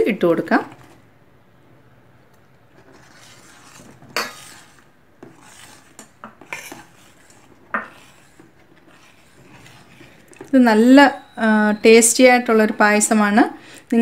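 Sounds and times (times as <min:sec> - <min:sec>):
metal ladle scraping steel pot: 0:02.8 - 0:11.4.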